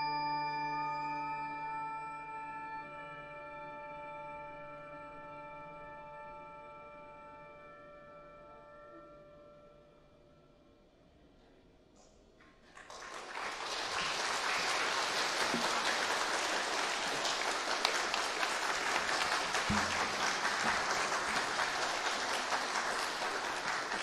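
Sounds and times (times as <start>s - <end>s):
audience applauding: 12.6s - 24.0s.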